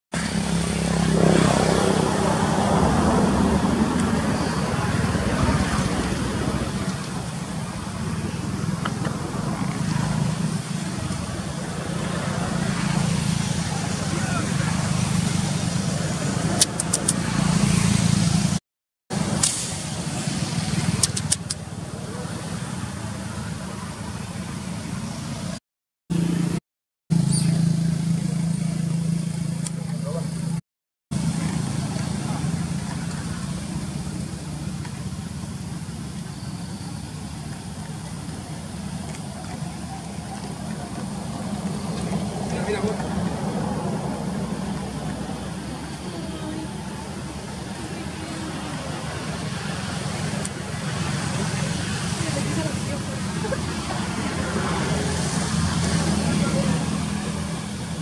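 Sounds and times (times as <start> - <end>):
rushing noise: 0.1 - 28.2
vehicle engine humming: 0.1 - 58.0
sharp ticks: 16.6 - 17.2.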